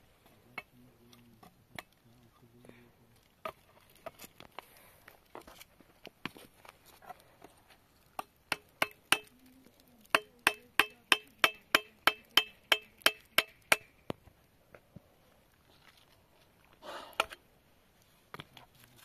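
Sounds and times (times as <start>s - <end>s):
hard object struck with ringing clink: 10.2s - 13.9s.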